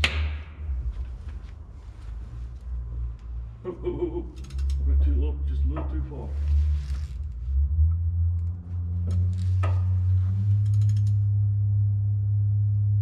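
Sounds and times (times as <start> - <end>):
ratchet clicking: 4.4 - 4.8, 9.3 - 11.3
sharp metallic clicks: 4.4 - 4.8, 10.5 - 11.2.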